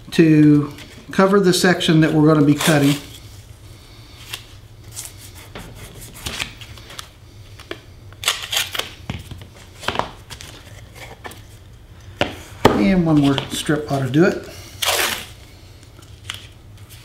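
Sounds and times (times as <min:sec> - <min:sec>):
tape rustling and crackling: 0:04.2 - 0:12.4, 0:14.4 - 0:17.0.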